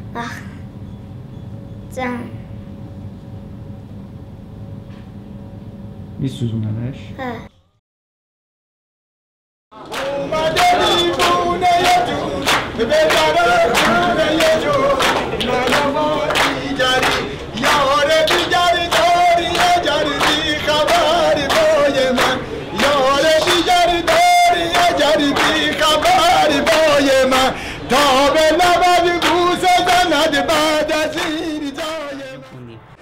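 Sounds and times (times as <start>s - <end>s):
men clapping in rhythm: 9.8s - 32.4s
man singing with ornamented voice: 9.8s - 32.8s.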